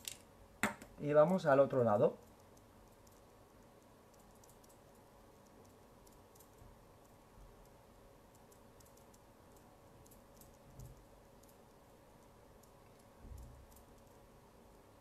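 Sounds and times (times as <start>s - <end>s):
faint irregular clicks: 0.0s - 14.3s.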